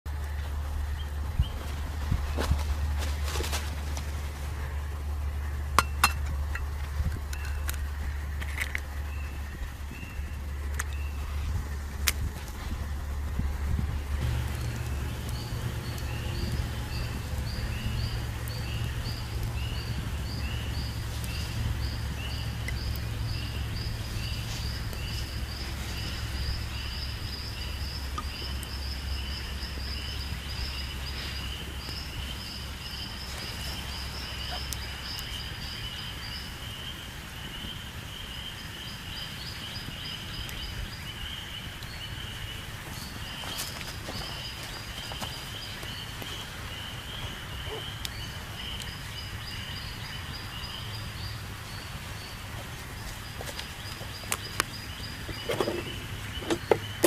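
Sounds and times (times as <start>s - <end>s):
low rumble: 0.1s - 36.8s.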